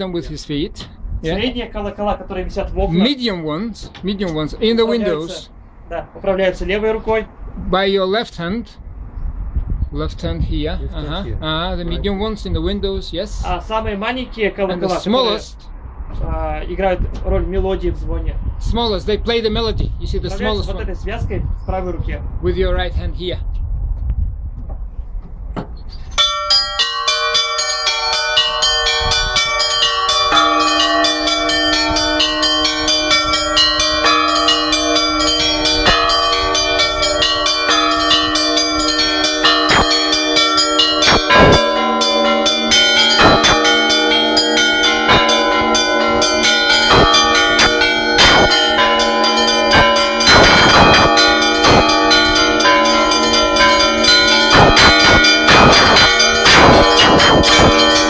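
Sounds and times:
deep bells tolling: 0.6 - 5.5, 26.2 - 58.0
small bells ringing melody: 26.1 - 58.0.

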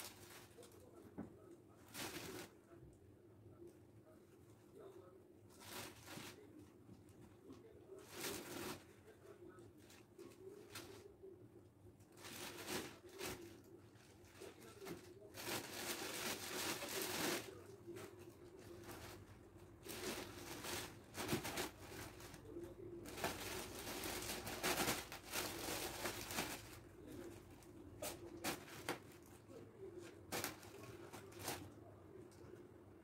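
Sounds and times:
plastic wrapping crinkling: 12.2 - 18.1, 18.7 - 22.4, 23.0 - 27.4, 30.3 - 31.6.

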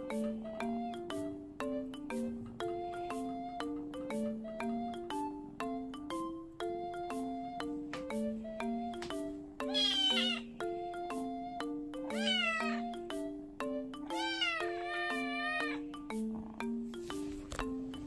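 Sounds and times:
music with repeating melody: 0.0 - 18.0
kitten meowing: 9.6 - 10.5, 12.1 - 12.8, 14.1 - 15.8.

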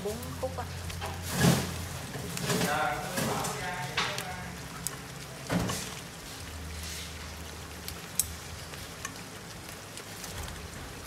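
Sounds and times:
crabs sizzling in a frying pan: 0.0 - 11.0.

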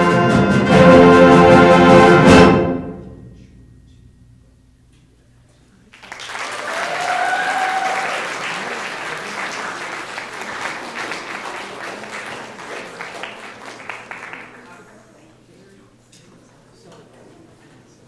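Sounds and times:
audience applauding: 5.9 - 15.0
audience cheering: 6.0 - 14.6.

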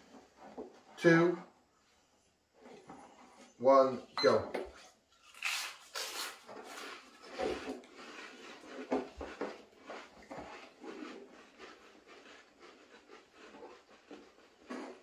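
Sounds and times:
people crunching crisps: 5.2 - 7.4.

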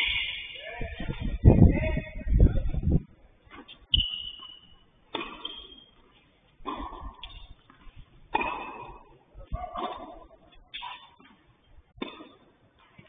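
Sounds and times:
tennis ball hit with rackets: 5.1 - 5.9, 6.6 - 13.0.

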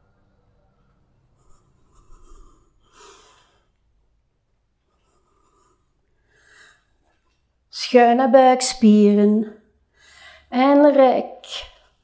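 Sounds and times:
faint breathing: 1.2 - 4.0, 4.8 - 7.3, 9.8 - 10.6.

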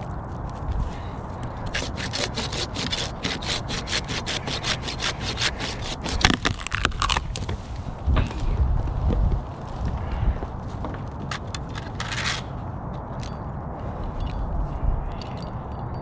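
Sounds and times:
wood cracking: 1.5 - 7.6
hand saw cutting wood: 1.7 - 7.2.

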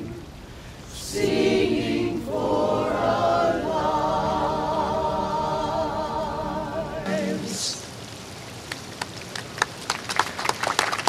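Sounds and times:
choir singing a cappella: 0.9 - 7.9.

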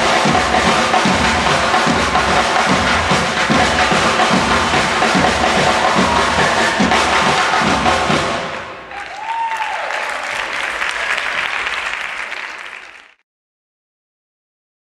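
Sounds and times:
drums beating: 0.0 - 9.7
audience applauding: 2.4 - 13.2.

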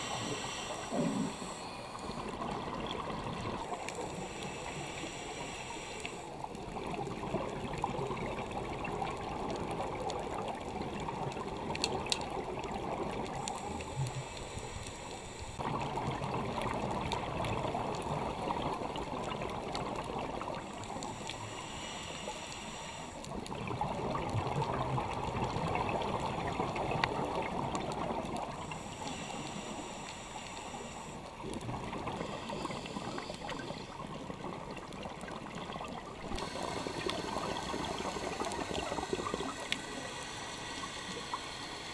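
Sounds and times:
regulator inhale hiss: 0.0 - 2.5, 3.6 - 6.6, 13.3 - 15.6, 20.5 - 23.4, 28.4 - 34.2, 36.3 - 41.9.

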